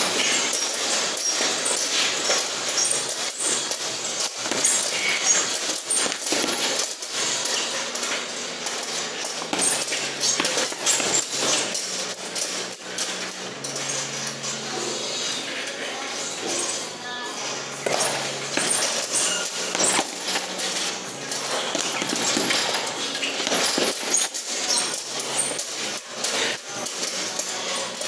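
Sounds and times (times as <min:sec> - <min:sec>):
punches hitting heavy bag: 0:02.7 - 0:07.4, 0:09.3 - 0:12.2, 0:17.8 - 0:27.5.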